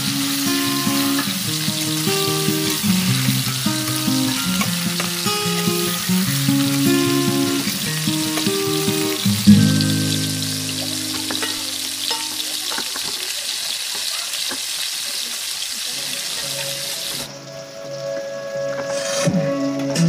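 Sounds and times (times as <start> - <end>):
background music: 0.0 - 12.2, 16.5 - 20.0
hot oil sizzling: 0.0 - 20.0.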